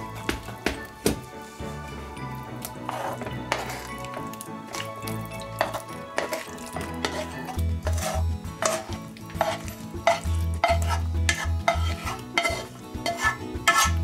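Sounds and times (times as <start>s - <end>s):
spatula scraping a frying pan: 2.7s - 4.2s, 5.6s - 14.0s.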